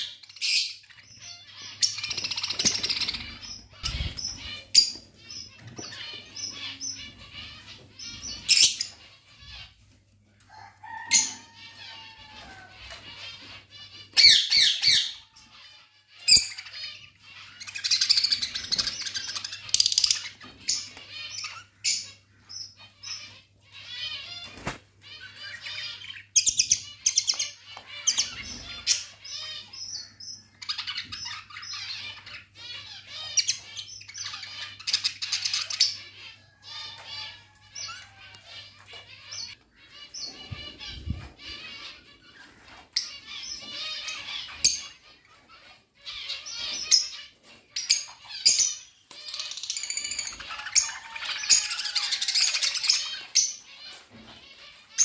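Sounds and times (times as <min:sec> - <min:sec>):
budgerigars chattering: 0:00.0 - 0:09.8
budgerigars chirping and warbling: 0:00.0 - 0:55.0.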